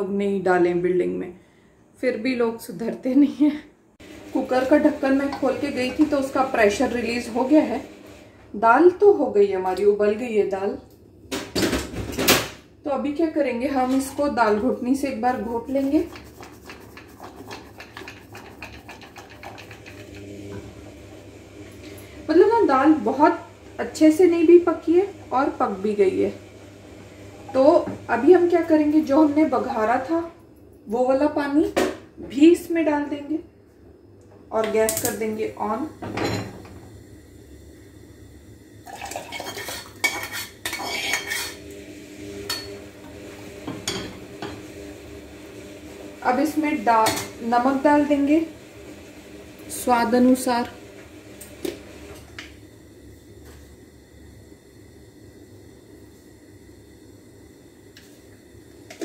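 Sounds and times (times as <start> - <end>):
wooden masher knocking and scraping pot: 4.5 - 6.4, 15.3 - 20.7
metal cookware clanking and scraping: 16.0 - 20.2, 39.2 - 41.7, 42.4 - 42.9, 43.6 - 44.7
water pouring: 38.8 - 40.0.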